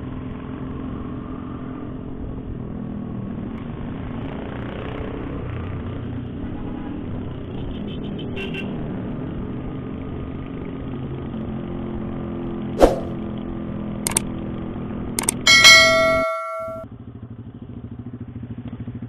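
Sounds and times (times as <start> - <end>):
wind rush: 12.8 - 13.2
sharp clicks: 14.1 - 14.3, 15.2 - 15.5
bell-like ding: 15.2 - 16.8.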